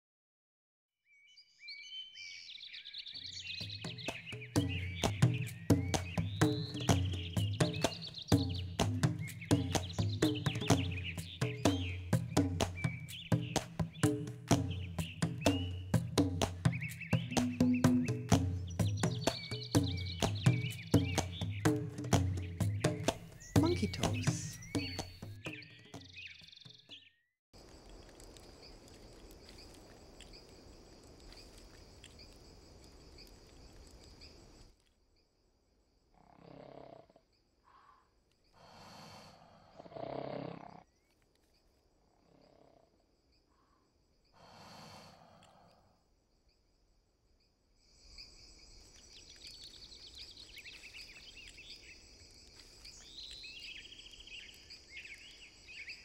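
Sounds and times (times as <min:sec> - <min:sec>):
bird chirps: 0:01.0 - 0:27.3, 0:47.9 - 0:56.0
insects chirping: 0:02.2 - 0:26.4, 0:27.6 - 0:56.0.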